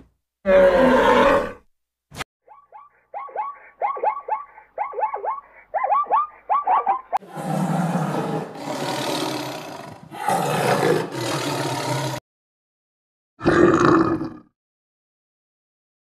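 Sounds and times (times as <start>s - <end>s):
tiger roaring and growling: 0.5s - 1.6s, 7.2s - 12.2s
donkey braying: 2.5s - 7.4s.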